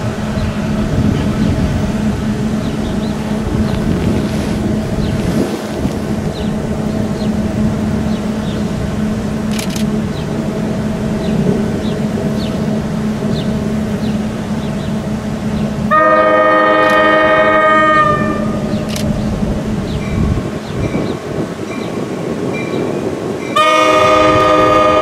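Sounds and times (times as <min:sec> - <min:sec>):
train rumbling: 0:00.0 - 0:25.0
train horn chord: 0:15.9 - 0:18.8, 0:23.6 - 0:25.0.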